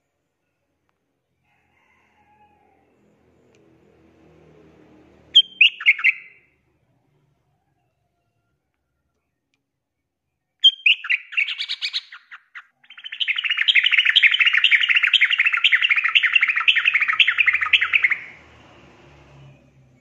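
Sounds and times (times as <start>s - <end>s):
bird chirps: 5.3s - 6.5s, 10.6s - 18.8s
bird singing: 5.3s - 6.5s, 10.4s - 18.6s
bird chattering phrase: 10.6s - 18.3s.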